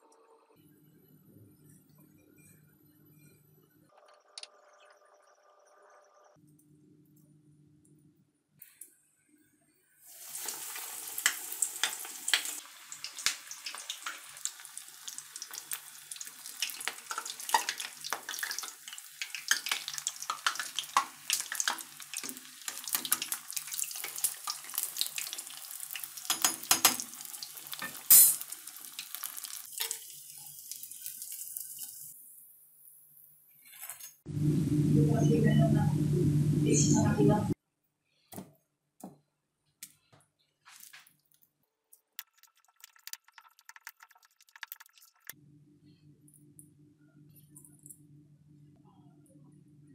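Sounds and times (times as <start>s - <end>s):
hot oil sizzling and crackling: 10.1s - 33.2s.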